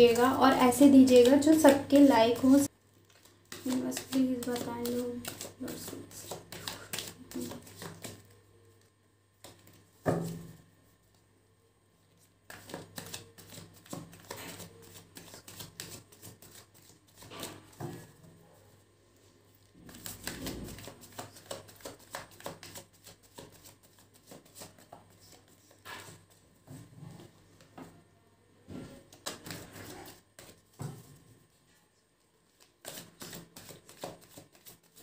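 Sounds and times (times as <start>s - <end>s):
cards being shuffled: 0.1s - 8.4s, 9.4s - 10.4s, 12.5s - 18.0s, 19.9s - 26.4s, 29.1s - 30.7s, 32.5s - 35.0s.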